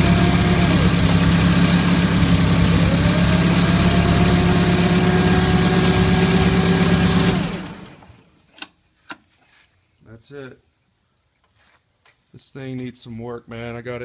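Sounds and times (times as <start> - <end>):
forklift engine whining: 0.0 - 8.3.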